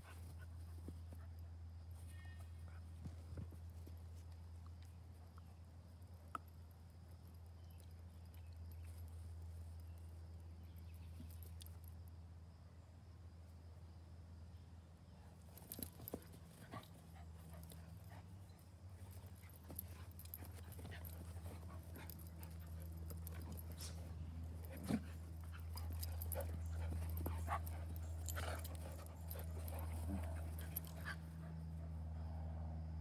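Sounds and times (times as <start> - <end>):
steady low hum: 0.0 - 33.0
dogs panting: 15.7 - 31.9.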